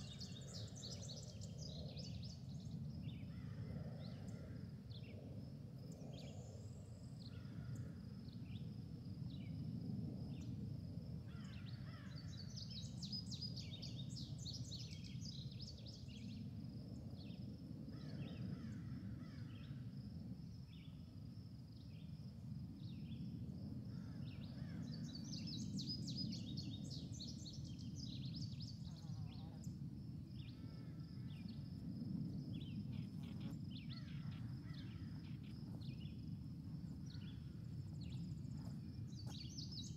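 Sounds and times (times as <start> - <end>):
bird calls and chirps: 39.1 - 39.9.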